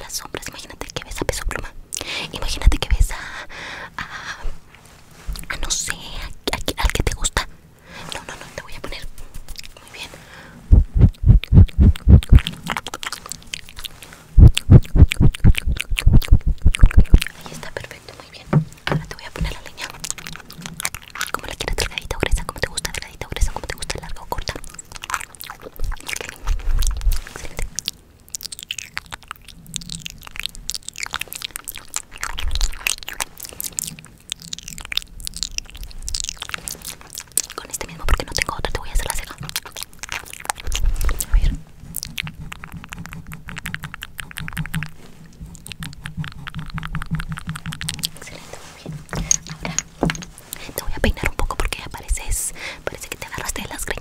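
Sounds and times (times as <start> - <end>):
wet mouth clicks and lip smacks: 8.1 - 10.1, 10.8 - 54.0
low thuds on microphone: 10.7 - 12.4, 18.5 - 19.6
makeup brush thumping microphone: 18.5 - 19.6.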